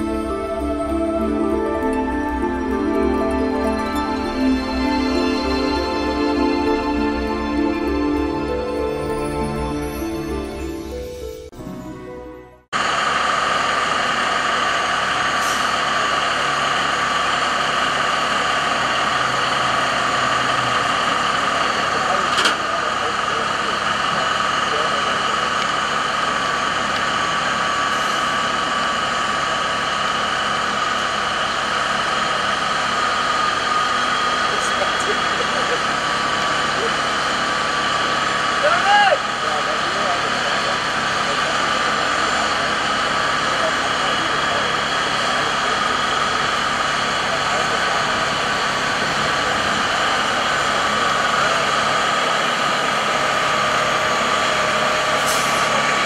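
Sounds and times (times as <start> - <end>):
high-pitched whine: 0.0 - 11.0
vehicle engine idling: 12.8 - 56.0.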